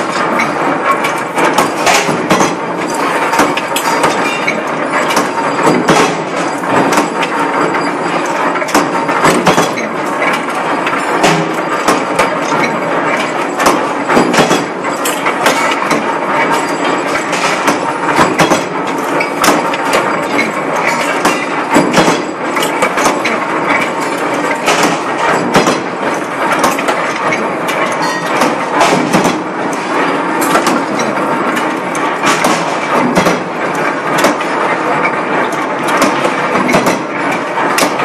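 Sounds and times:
loud machine clatter: 0:00.0 - 0:38.0
forging hammer metallic knocks: 0:11.2 - 0:23.4.

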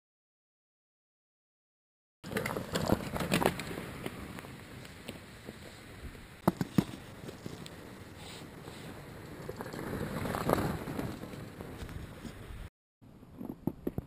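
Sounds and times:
bike tyres on snow: 0:02.2 - 0:12.7
bike knocks and rattles: 0:06.4 - 0:07.6.

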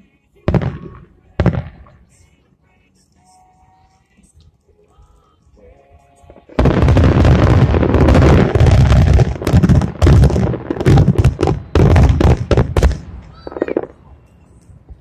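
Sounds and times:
fireworks bursting: 0:00.4 - 0:02.4, 0:06.3 - 0:15.0.

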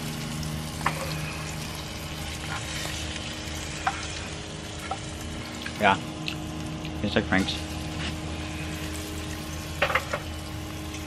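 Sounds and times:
fish frying in hot oil: 0:00.0 - 0:11.0.

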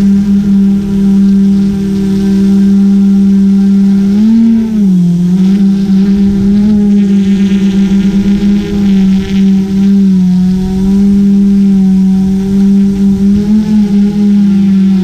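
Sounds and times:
drone motors humming: 0:00.0 - 0:15.0.

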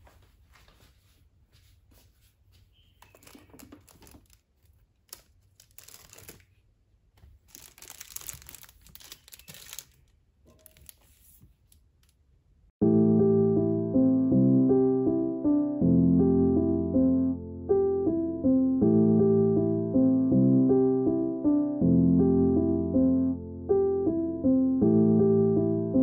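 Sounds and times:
books rustling on a shelf: 0:00.0 - 0:12.0.

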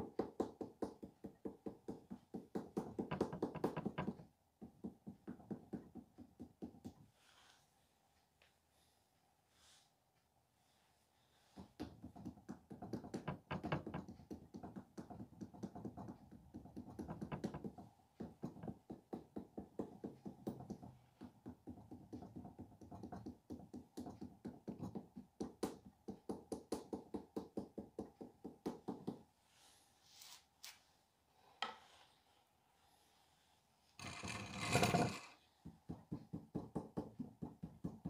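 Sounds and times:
rapid tapping on soft clay: 0:00.0 - 0:07.1, 0:11.5 - 0:29.3, 0:34.0 - 0:38.0
knocks: 0:00.1 - 0:06.7, 0:11.8 - 0:16.0, 0:16.6 - 0:23.6.

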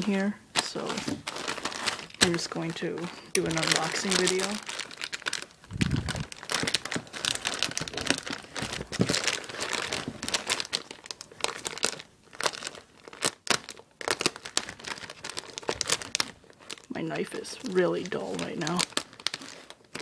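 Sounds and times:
plastic mailer crinkling: 0:00.0 - 0:20.0
plastic tearing: 0:00.0 - 0:20.0.

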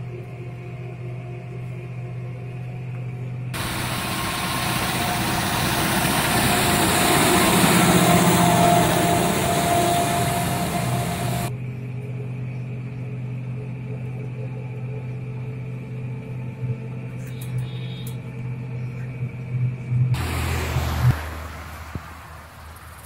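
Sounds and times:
tractor driving past: 0:03.6 - 0:11.5, 0:19.9 - 0:23.0.

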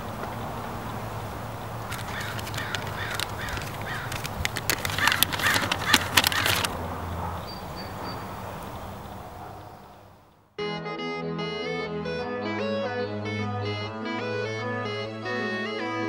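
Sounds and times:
paper crackling and crinkling: 0:01.8 - 0:06.8
bird calling: 0:01.8 - 0:10.1.

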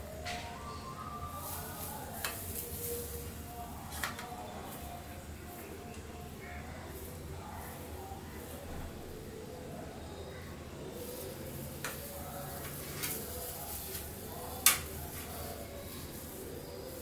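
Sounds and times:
gloved hands handling meat: 0:10.9 - 0:17.0.

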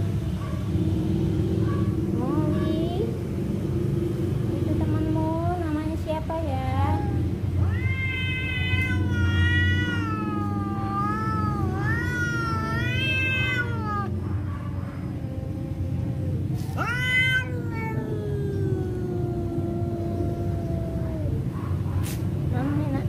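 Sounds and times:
cats yowling: 0:06.8 - 0:21.9.

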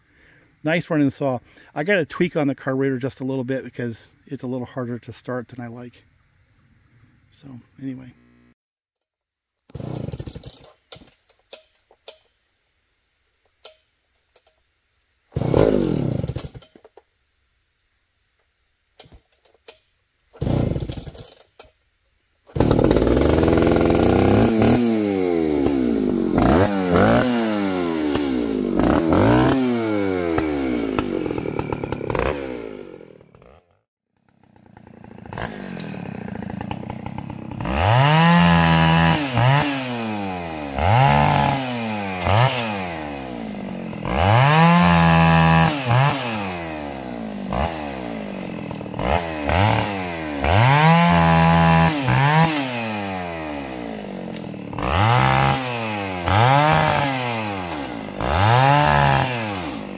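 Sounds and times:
chainsaw starter pulls: 0:09.6 - 0:12.2, 0:15.3 - 0:17.0, 0:19.0 - 0:21.8, 0:22.5 - 0:59.9
chainsaw revving: 0:09.7 - 0:10.6, 0:15.3 - 0:16.6, 0:20.4 - 0:21.4, 0:22.5 - 0:59.9.

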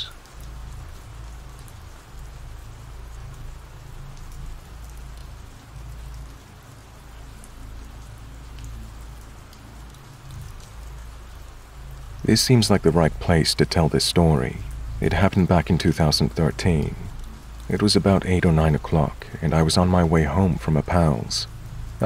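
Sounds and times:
rain hissing on a surface: 0:00.0 - 0:22.0.

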